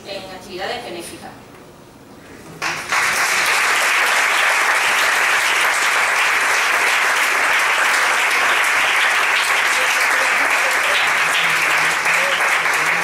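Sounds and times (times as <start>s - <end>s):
audience applauding: 2.6s - 13.0s.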